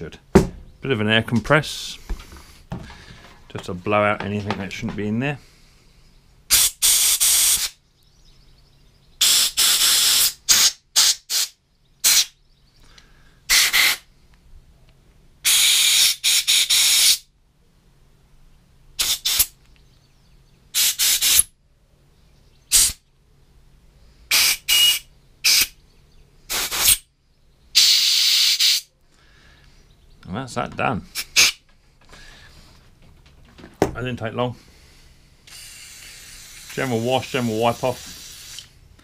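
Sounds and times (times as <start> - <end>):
compressed air blasts: 6.5 - 7.8, 9.2 - 12.4, 13.5 - 14.1, 15.4 - 17.3, 19.0 - 19.6, 20.7 - 21.5, 22.7 - 23.0, 24.3 - 25.8, 26.5 - 27.1, 27.8 - 28.9, 31.1 - 32.6, 34.6 - 38.8.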